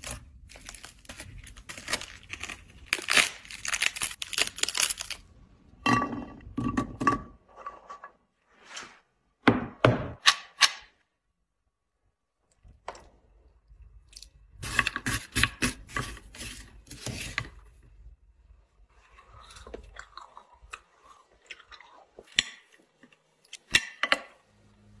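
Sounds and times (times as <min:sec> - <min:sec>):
frozen fruit crackling in milk: 0:00.0 - 0:05.6.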